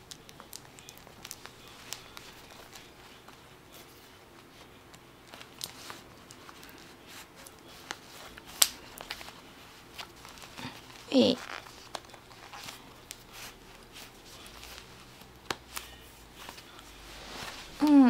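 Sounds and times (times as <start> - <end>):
leather and denim rustling: 16.3 - 18.0.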